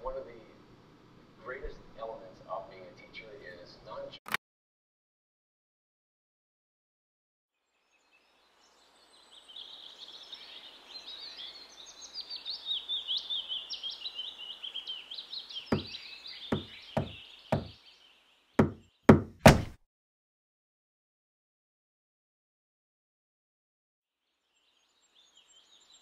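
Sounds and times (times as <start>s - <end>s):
knocking on a door: 15.7s - 15.9s, 16.5s - 17.8s, 18.6s - 19.8s
high chirping: 15.7s - 17.7s.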